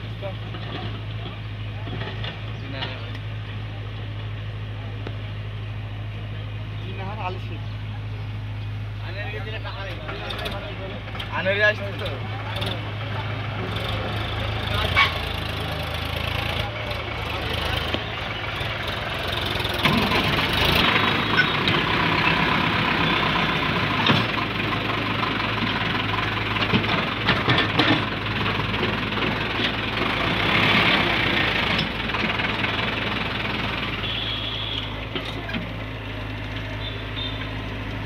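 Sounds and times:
diesel engines running: 0.0 - 38.0
knocks and clatter: 23.9 - 24.6, 26.4 - 29.9.

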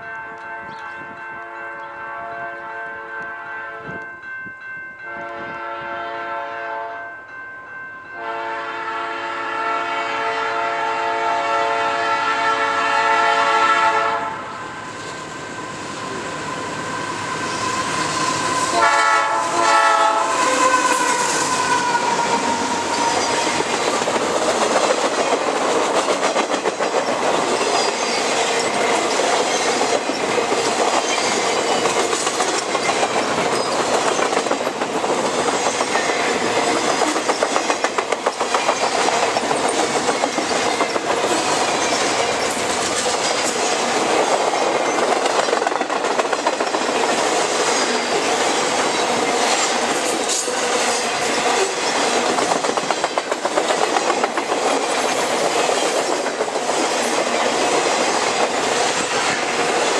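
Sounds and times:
locomotive air horn blasts: 2.1 - 4.0, 5.1 - 7.1, 8.2 - 14.6, 18.6 - 23.6
train cars clacking over rail joints: 17.6 - 59.9.

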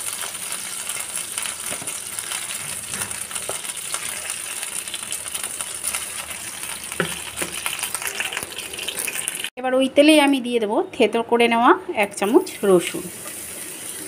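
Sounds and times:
chicken sizzling in oil: 0.0 - 9.5, 12.3 - 14.0.

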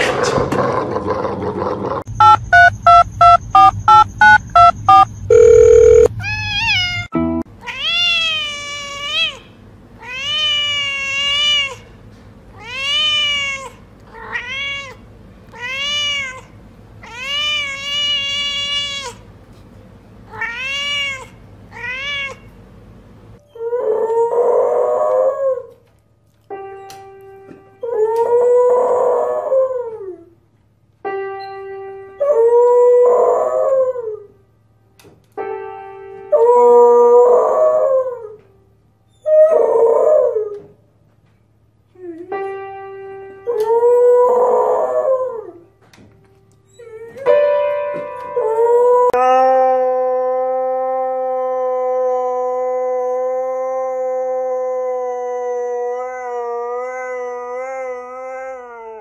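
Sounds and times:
piano notes: 7.1 - 7.6, 35.4 - 37.2, 42.2 - 44.2, 45.7 - 49.8
dog howling: 48.4 - 59.0
long steady dog howl: 48.4 - 59.0.

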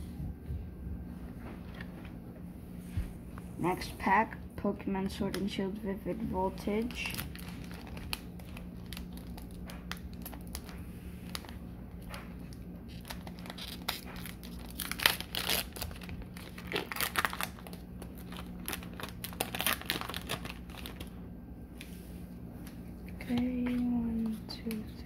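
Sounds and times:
foil wrapper tearing and crinkling: 6.5 - 21.2.

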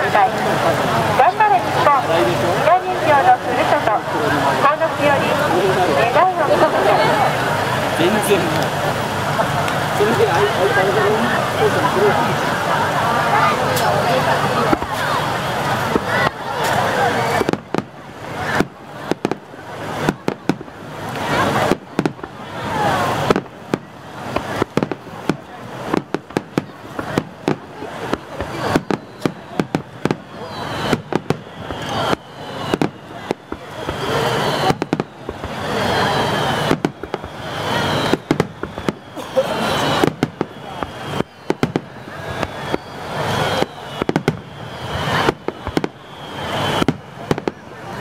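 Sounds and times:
firework crackling: 0.0 - 48.0
high falling whistles: 28.6 - 47.0
firework shells bursting: 36.4 - 47.6.

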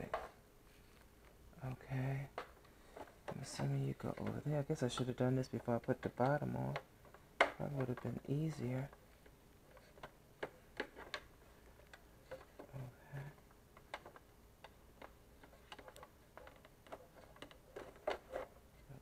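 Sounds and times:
plastic clicks and taps: 13.8 - 18.5.

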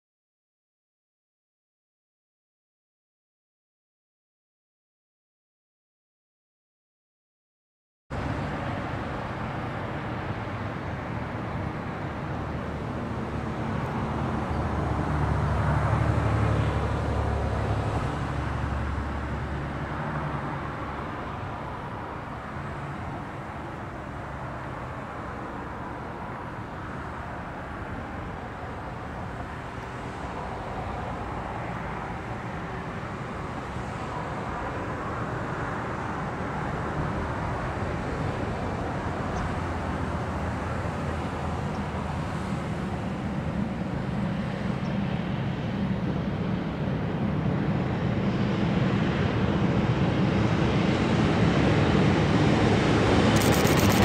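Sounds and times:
traffic noise: 8.1 - 54.0.

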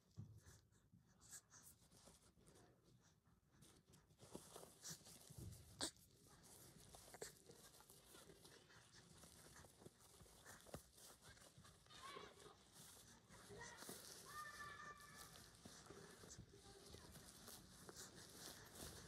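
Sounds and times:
diaper and bedding rustling: 0.0 - 19.0.

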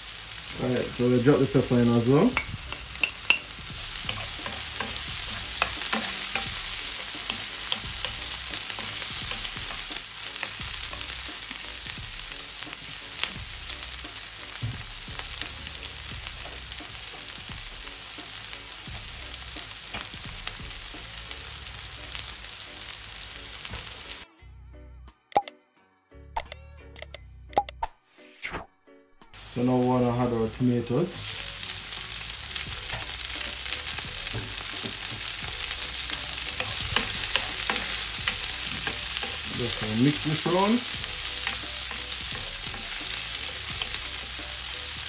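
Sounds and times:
vegetables sizzling in frying pan: 0.0 - 24.2, 29.4 - 45.0
wooden spoon stirring: 1.3 - 11.2, 32.9 - 45.0.

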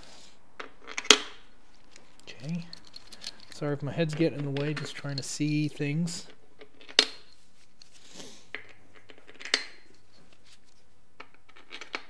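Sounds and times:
metal bolts clinking: 2.2 - 7.4.

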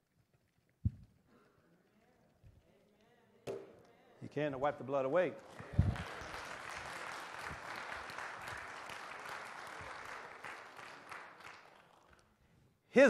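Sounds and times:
crowd applauding: 5.2 - 12.4.

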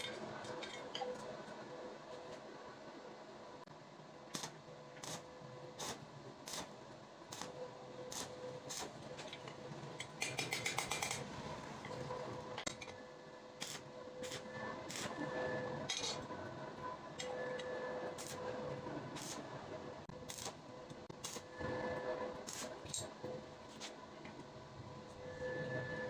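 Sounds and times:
welding clicks and crackling: 4.3 - 5.2, 7.3 - 11.3, 20.3 - 20.6.

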